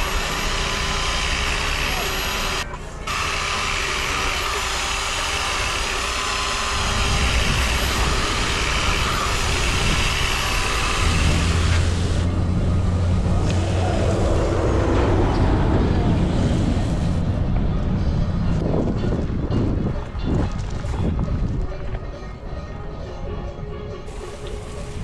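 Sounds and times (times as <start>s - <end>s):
hose spraying water: 0.0s - 12.3s, 24.1s - 25.0s
orbital sander running: 0.0s - 12.8s.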